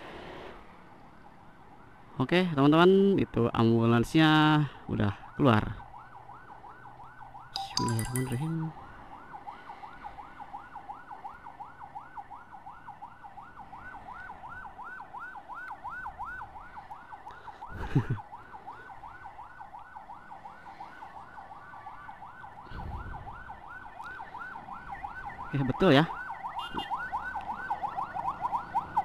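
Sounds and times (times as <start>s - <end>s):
siren yelping: 23.2s - 29.0s.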